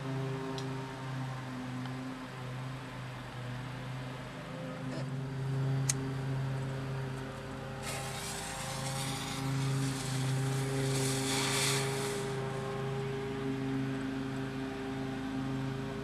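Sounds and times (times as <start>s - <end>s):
low mechanical hum: 0.0s - 16.0s
smoke bomb fuse fizzing: 7.8s - 12.4s.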